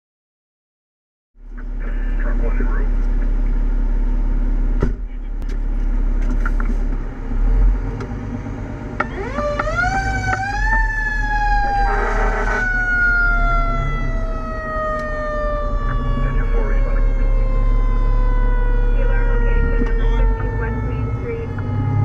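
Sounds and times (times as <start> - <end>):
diesel engine drone: 1.4 - 22.0
harsh horn blast: 11.8 - 12.8.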